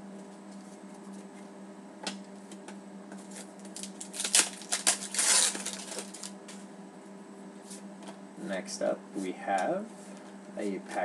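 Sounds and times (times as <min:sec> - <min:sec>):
trading cards rustling: 0:03.2 - 0:06.4.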